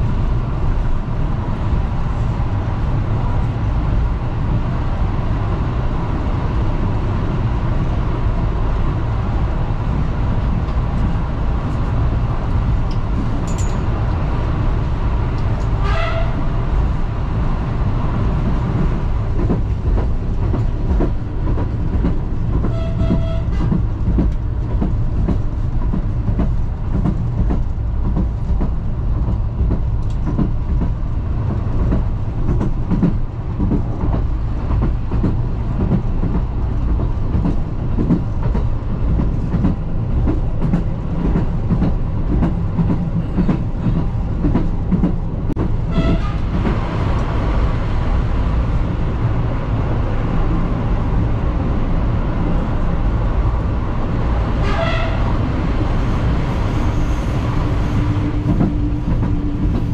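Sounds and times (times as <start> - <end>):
railcar engine drone: 0.0 - 59.9
train horn blasts: 15.8 - 16.5, 22.6 - 23.8, 45.9 - 46.6, 54.6 - 55.4.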